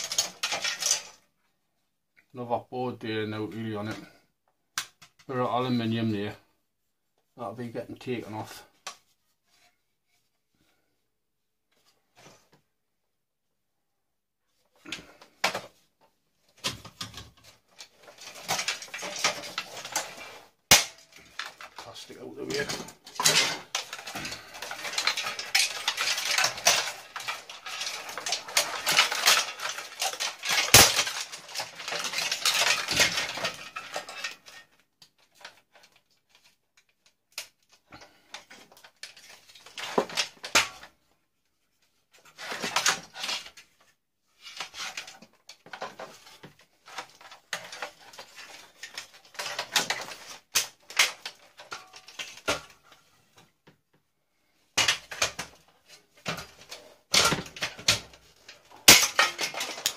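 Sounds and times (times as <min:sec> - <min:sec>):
scrap parts clattering: 0:00.0 - 0:01.2, 0:14.8 - 0:15.8, 0:16.5 - 0:36.6, 0:37.4 - 0:41.0, 0:41.8 - 0:53.5, 0:54.5 - 0:59.9.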